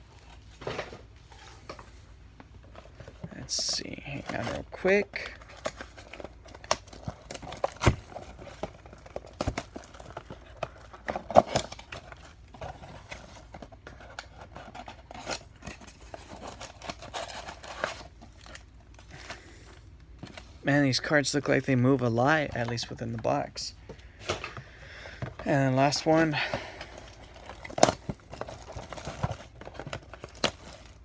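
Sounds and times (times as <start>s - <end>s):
shrink wrap tearing and crinkling: 3.3s - 19.6s, 25.4s - 31.0s.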